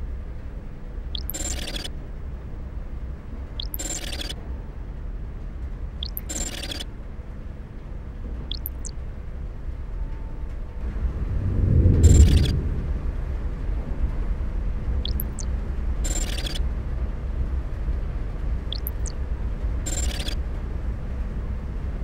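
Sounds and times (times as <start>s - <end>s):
rising electronic chirps: 1.2s - 1.9s, 3.6s - 4.4s, 6.0s - 6.8s, 8.5s - 8.9s, 12.0s - 12.6s, 15.0s - 16.6s, 18.7s - 19.2s, 19.9s - 20.4s
low rumbling drone: 8.5s - 20.4s
whoosh: 10.8s - 14.0s
hissy digital swishes: 11.9s - 12.7s.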